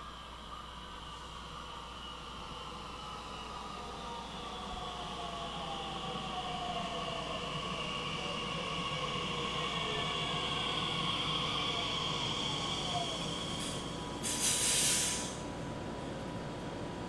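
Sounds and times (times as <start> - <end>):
train rolling rumble: 2.6 - 17.0
short loud hiss: 13.6 - 15.4.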